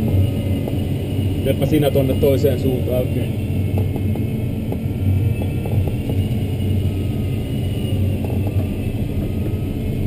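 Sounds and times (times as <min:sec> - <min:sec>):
airflow rushing around cockpit: 0:00.0 - 0:10.0.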